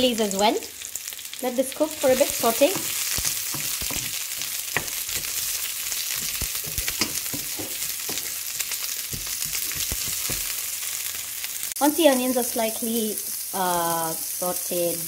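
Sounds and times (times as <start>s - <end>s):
onions sizzling in hot oil: 0.0s - 15.0s
wooden spoon knocking on pan: 2.2s - 10.6s.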